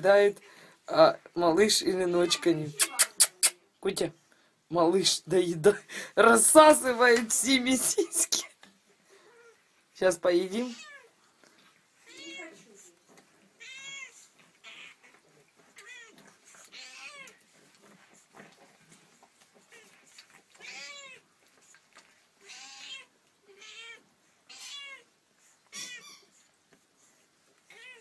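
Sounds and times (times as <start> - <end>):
cat meowing: 10.6 - 11.1, 12.0 - 12.6, 13.6 - 15.1, 15.8 - 17.4, 20.6 - 21.2, 22.4 - 25.1, 25.7 - 26.3, 27.7 - 28.0.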